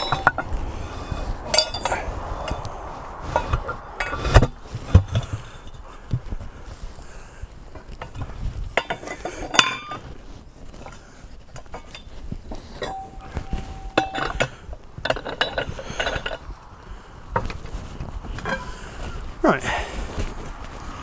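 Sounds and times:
metal clinks and knocks: 0:00.0 - 0:02.7, 0:07.7 - 0:10.1, 0:11.6 - 0:16.6, 0:18.3 - 0:18.9.

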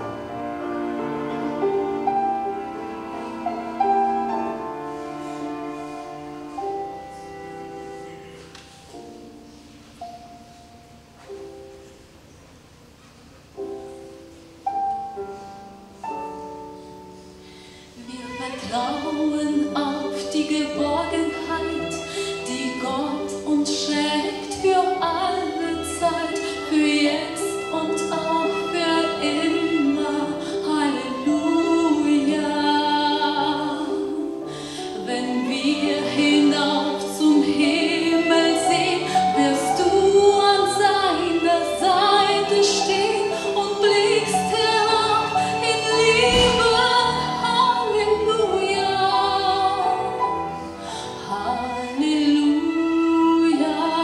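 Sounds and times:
instrumental accompaniment: 0:00.0 - 0:54.0
woman singing into microphone: 0:18.0 - 0:50.2, 0:50.9 - 0:54.0.

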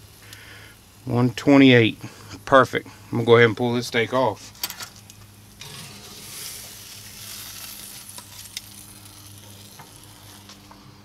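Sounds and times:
steak sizzling: 0:05.0 - 0:11.0.

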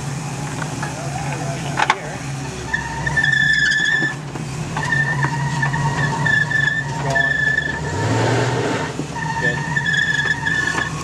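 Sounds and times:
high-pitched squeals: 0:02.5 - 0:11.0.

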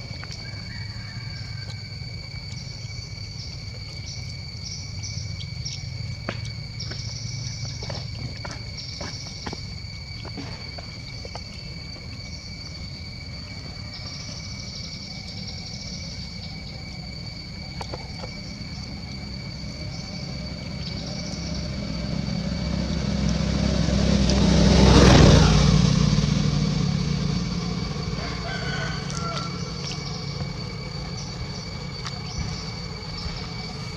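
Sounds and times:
vehicle engine passing by: 0:18.9 - 0:33.9.

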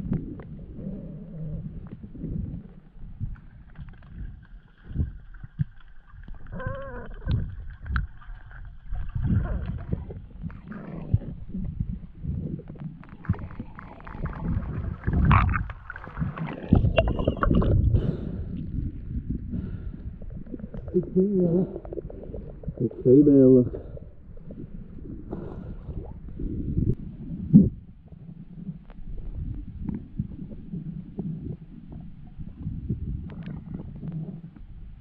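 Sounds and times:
underwater rumbling and gurgling: 0:00.0 - 0:35.0
brief wavering tone: 0:16.9 - 0:17.6.

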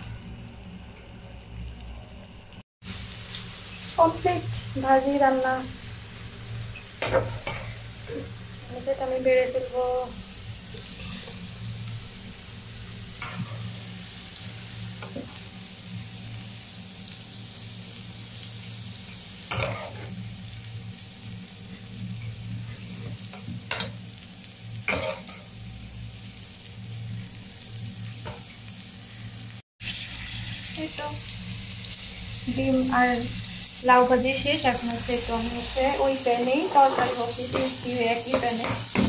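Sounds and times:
metal spatula scraping in wok: 0:10.8 - 0:11.4, 0:35.8 - 0:39.0.

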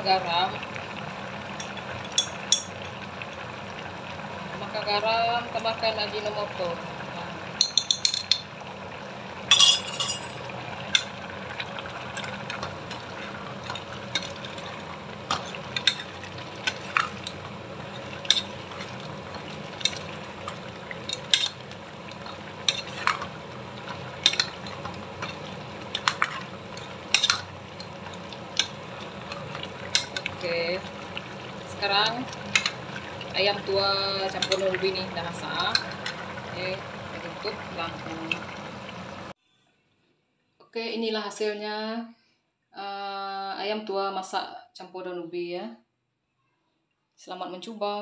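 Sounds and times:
metal spoon scraping pot: 0:12.2 - 0:21.6, 0:22.2 - 0:23.3, 0:23.9 - 0:27.9.

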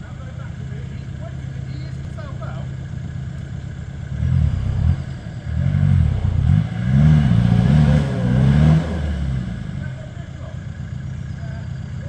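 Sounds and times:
diesel engine revving hard: 0:04.0 - 0:10.2.

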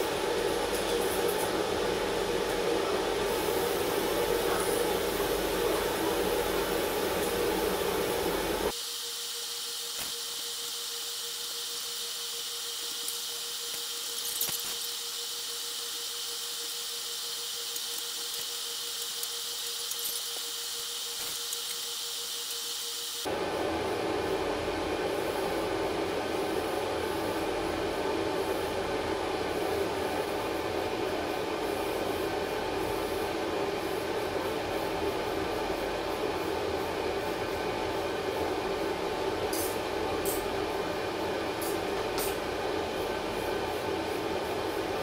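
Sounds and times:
aerosol spray paint hissing: 0:03.3 - 0:23.3.

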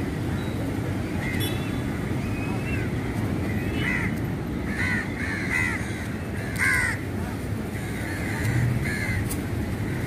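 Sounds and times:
wind: 0:00.0 - 0:10.0
crows cawing: 0:03.8 - 0:07.0, 0:07.8 - 0:10.0.

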